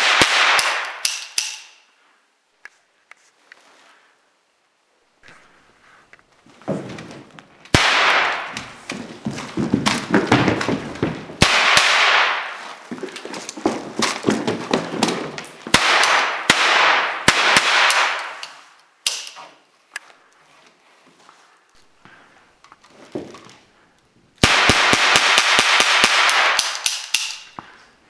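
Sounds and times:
toy cap gun cracks: 0:00.6 - 0:01.8, 0:18.2 - 0:19.4, 0:26.5 - 0:27.6
knocks and rattles: 0:08.2 - 0:11.5, 0:12.6 - 0:15.8.

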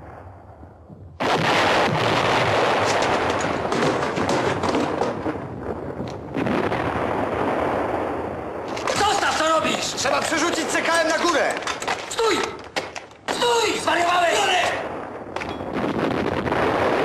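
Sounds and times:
dense gunfire: 0:01.2 - 0:12.0, 0:14.6 - 0:17.0.

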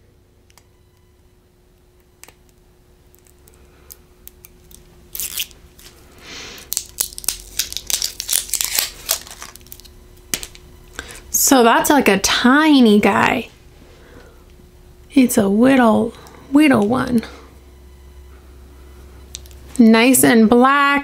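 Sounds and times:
packaging tearing and crinkling: 0:03.1 - 0:10.6.

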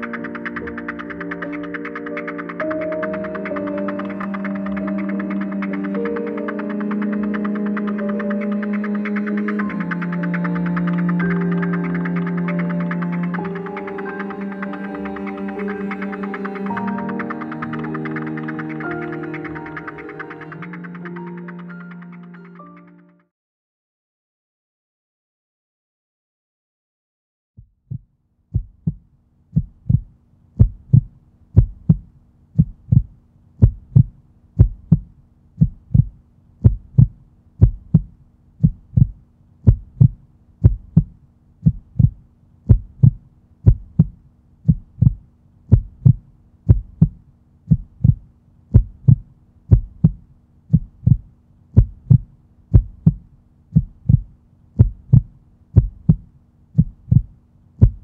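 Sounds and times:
heartbeat thumps: 0:27.6 - 0:58.0.

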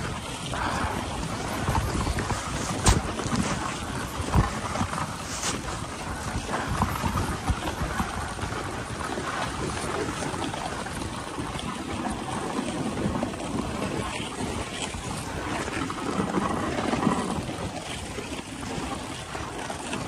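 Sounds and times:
sled runners hissing on snow: 0:00.5 - 0:07.3
sled knocking as it jolts: 0:00.6 - 0:10.1.

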